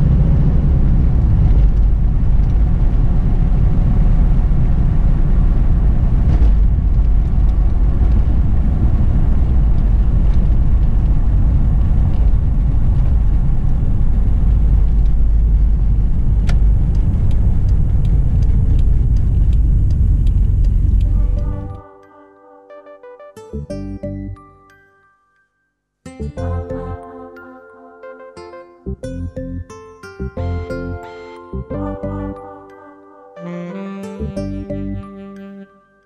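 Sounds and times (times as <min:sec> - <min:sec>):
road rumble: 0:00.0 - 0:21.8
light ticks: 0:16.4 - 0:21.2.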